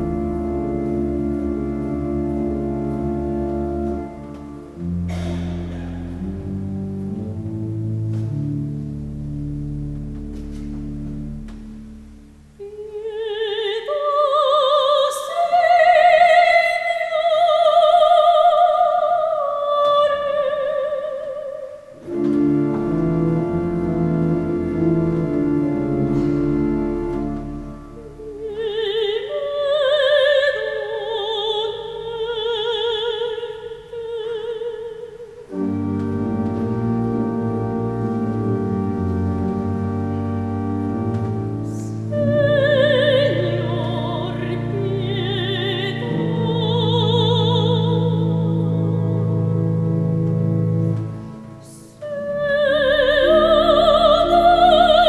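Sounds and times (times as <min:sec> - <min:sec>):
pipe organ chords: 0:00.0 - 0:12.6, 0:22.0 - 0:28.5, 0:35.4 - 0:55.0
soprano singing with vibrato: 0:12.6 - 0:22.0, 0:28.0 - 0:35.5, 0:41.6 - 0:48.8, 0:51.6 - 0:55.0.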